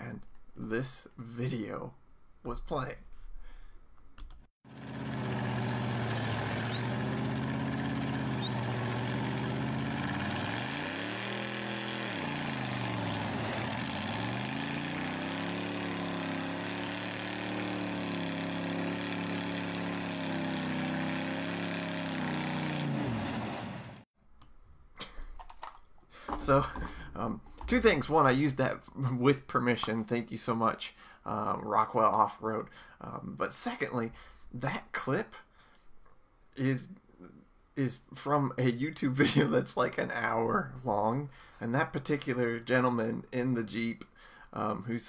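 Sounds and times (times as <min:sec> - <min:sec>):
engine revving hard: 0:04.7 - 0:24.0.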